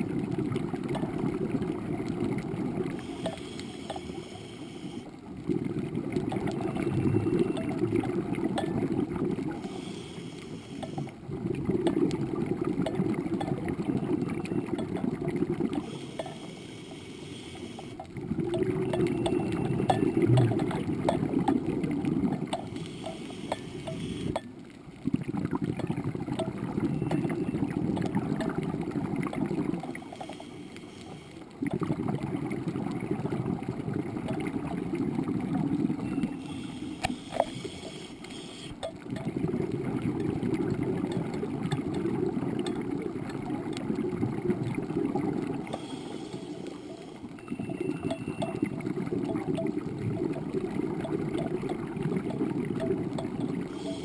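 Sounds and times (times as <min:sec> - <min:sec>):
exhaled bubbles rushing underwater: 0:00.0 - 0:04.3, 0:05.0 - 0:09.9, 0:10.8 - 0:16.2, 0:18.0 - 0:30.2, 0:31.4 - 0:37.8, 0:38.7 - 0:54.0
faint clicks: 0:00.6 - 0:24.9, 0:25.7 - 0:31.9, 0:35.7 - 0:39.3, 0:39.9 - 0:54.0
regulator inhale hiss: 0:02.8 - 0:05.2, 0:09.5 - 0:11.2, 0:15.8 - 0:18.1, 0:22.6 - 0:24.4, 0:29.9 - 0:31.6, 0:36.3 - 0:38.9, 0:45.6 - 0:47.4, 0:53.7 - 0:54.0.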